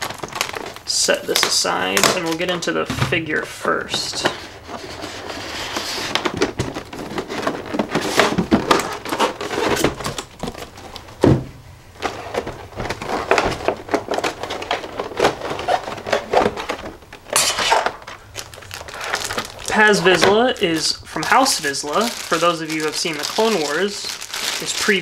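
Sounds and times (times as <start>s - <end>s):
plastic packaging crinkling: 0.0s - 11.2s, 11.9s - 25.0s.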